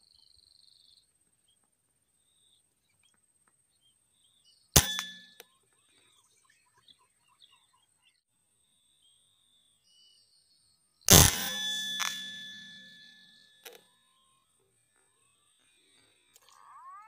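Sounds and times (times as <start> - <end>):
air rifle shot: 4.8 - 5.2, 11.1 - 12.8.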